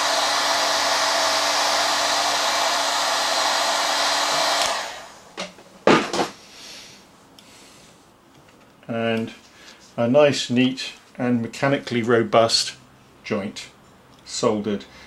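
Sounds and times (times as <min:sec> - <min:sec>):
hot air gun blowing: 0:00.0 - 0:05.2.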